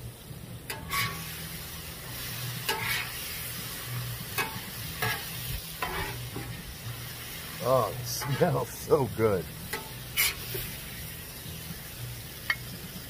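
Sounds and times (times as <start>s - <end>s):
green beans sizzling on griddle: 0.0s - 13.0s
metal spatula scraping steel: 0.7s - 1.3s, 2.2s - 3.5s, 4.3s - 6.6s, 8.1s - 8.6s, 9.6s - 10.7s.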